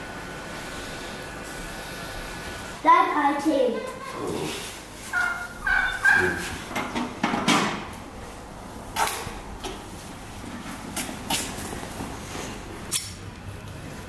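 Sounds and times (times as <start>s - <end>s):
fowl calling: 5.1s - 6.7s.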